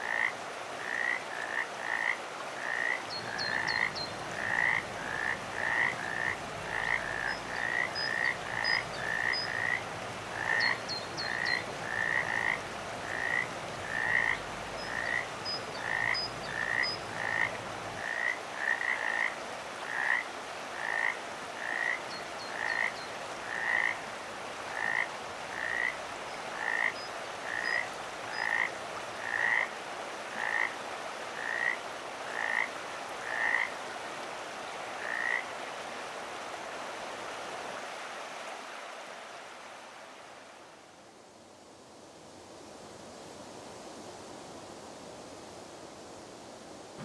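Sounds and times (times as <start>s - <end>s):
frog croaking: 0.0s - 24.0s, 24.7s - 29.7s, 30.3s - 30.7s, 31.4s - 33.7s, 35.0s - 35.5s
steady background hiss: 0.0s - 47.0s.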